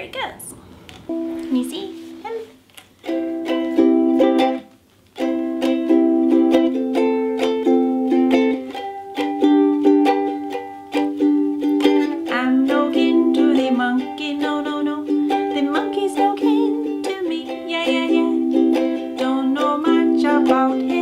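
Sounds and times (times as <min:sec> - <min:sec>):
ukulele strumming: 0:01.1 - 0:21.0
woman singing: 0:12.2 - 0:21.0.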